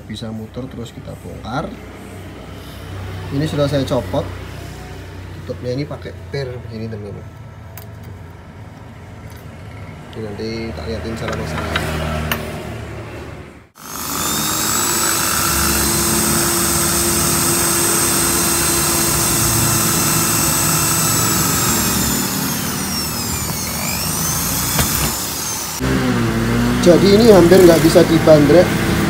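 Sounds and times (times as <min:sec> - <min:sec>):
electric drill boring into metal: 0:13.8 - 0:26.0.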